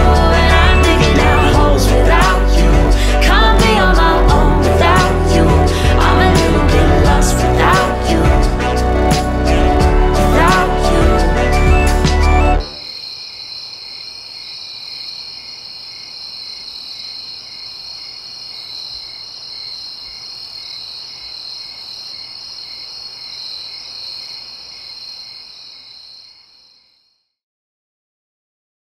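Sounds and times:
music: 0.0s - 12.8s
insects high trill: 10.4s - 27.0s
insects lower chirp: 11.2s - 27.2s.

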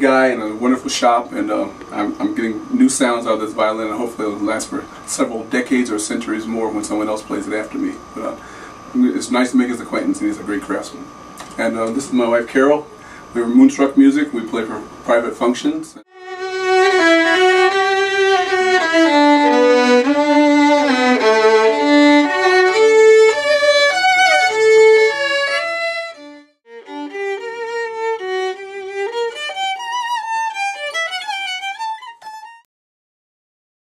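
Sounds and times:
two violins playing a melody: 16.1s - 32.6s.

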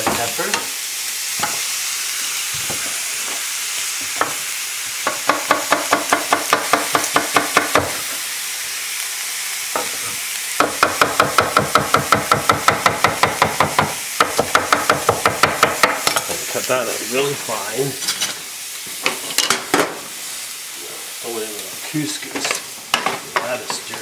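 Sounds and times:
fish sizzling in grill pan: 0.0s - 24.0s
knife chopping on wooden board: 5.1s - 8.0s, 10.6s - 16.2s.

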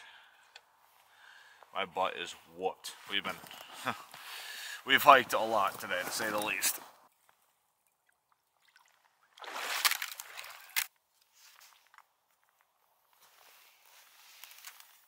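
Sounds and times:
water sloshing and trickling: 7.2s - 10.9s.

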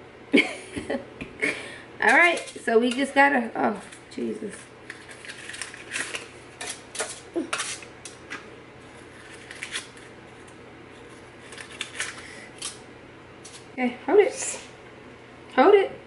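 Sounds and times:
paper liners crinkling: 3.7s - 7.9s, 8.9s - 12.8s.

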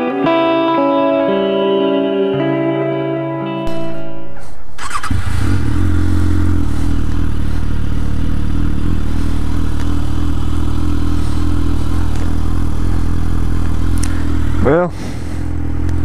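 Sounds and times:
motorcycle engine idling: 4.8s - 16.0s.

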